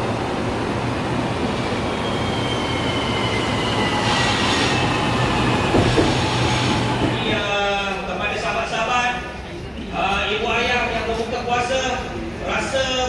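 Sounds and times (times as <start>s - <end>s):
electric train rumbling past: 0.0s - 8.9s.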